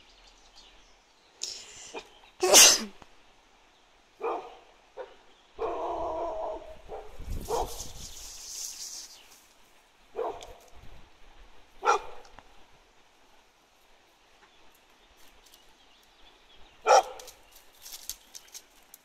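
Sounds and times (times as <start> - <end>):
dog barking: 4.2 - 7.8, 10.1 - 10.7, 11.8 - 12.4, 16.8 - 17.3.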